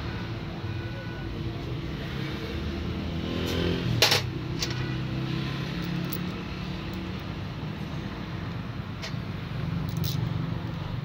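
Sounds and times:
small metal parts clicking: 5.8 - 7.4, 9.8 - 10.8.

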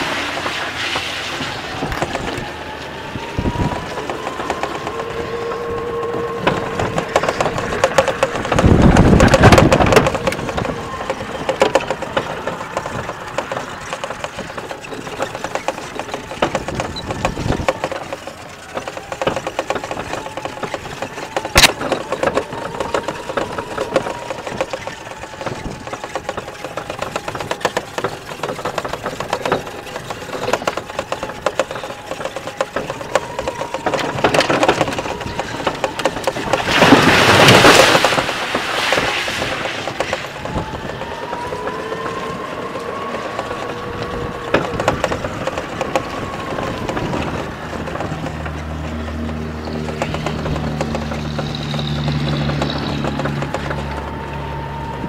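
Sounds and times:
electric motor whine: 0.0 - 55.0
golf cart rattling and clicking: 0.0 - 55.0
rushing noise: 0.0 - 55.0.

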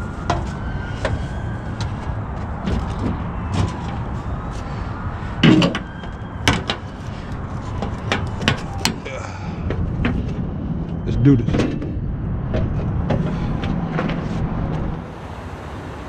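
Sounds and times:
truck idling rumble: 12.1 - 16.0.

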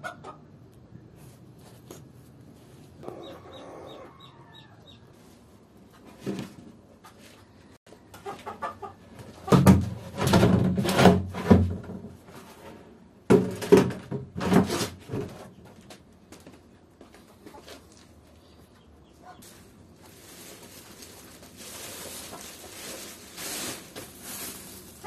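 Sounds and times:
chickens clucking: 0.0 - 0.7, 2.8 - 5.2, 6.8 - 9.7, 17.2 - 23.7
plastic cans knocking and scraping: 9.2 - 15.9.

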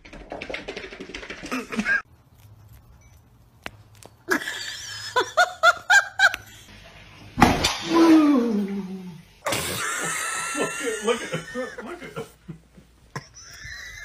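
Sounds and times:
person laughing: 1.5 - 2.0, 4.3 - 6.6, 9.5 - 14.0.

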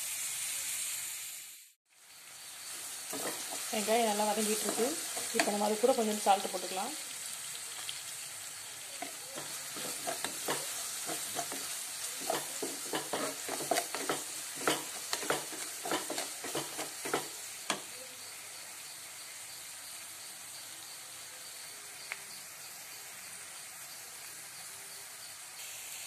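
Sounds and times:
onions sizzling in hot oil: 0.0 - 26.0
wooden spatula scraping pan: 3.1 - 5.9, 9.0 - 17.8.

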